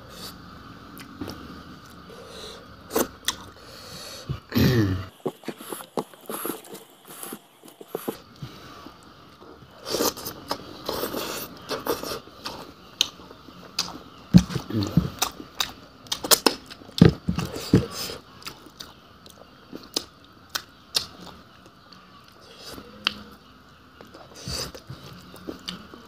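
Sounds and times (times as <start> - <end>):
chewing and crunching: 5.1 - 23.3, 24.0 - 26.0.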